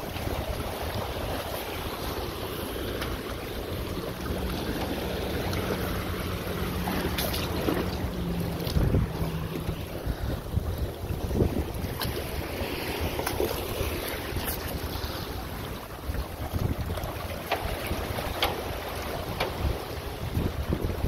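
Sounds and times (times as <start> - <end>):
small waves lapping against rocks: 0.0 - 21.0
wind buffeting microphone: 0.0 - 21.0.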